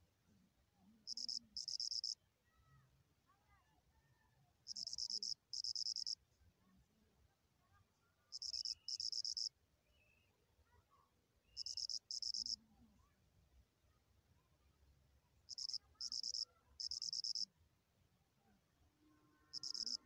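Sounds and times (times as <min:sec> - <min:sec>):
insect chirping trills: 0:01.1 - 0:02.2, 0:04.7 - 0:06.2, 0:08.3 - 0:09.5, 0:11.6 - 0:12.6, 0:15.5 - 0:17.5, 0:19.5 - 0:20.0.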